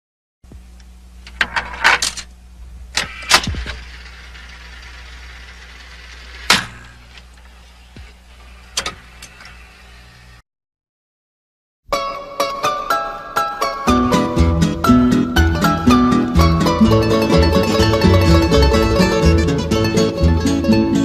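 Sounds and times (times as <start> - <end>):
motor hum: 0.5 - 10.4, 14.8 - 20.8
mechanical clicks and clunks: 2.9 - 4.9, 8.7 - 9.6.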